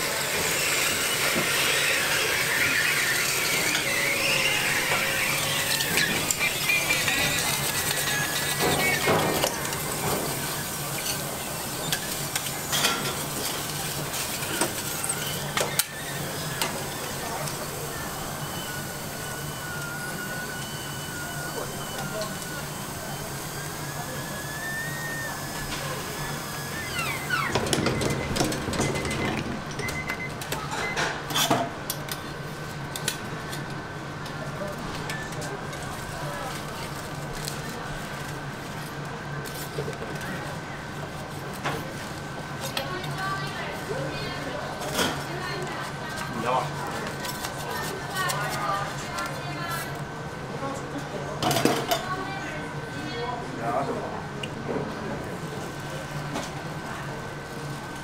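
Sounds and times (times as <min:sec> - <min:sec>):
metal press squealing: 0:00.0 - 0:09.5, 0:26.2 - 0:31.5
crackling and sizzling plates: 0:00.0 - 0:27.3
thin high whistle: 0:18.4 - 0:27.5.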